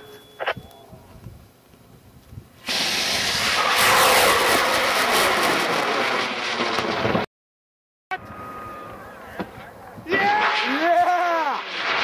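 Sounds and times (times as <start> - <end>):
rocket motor roaring: 2.6 - 7.3
faint falling tone: 8.1 - 11.6.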